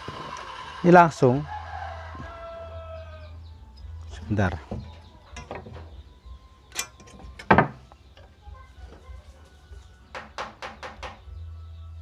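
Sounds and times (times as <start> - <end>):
low workshop hum: 0.0 - 8.2.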